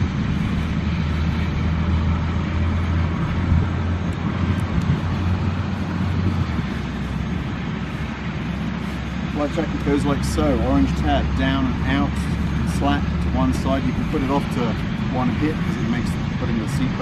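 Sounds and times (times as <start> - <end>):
engine droning: 0.0 - 17.0.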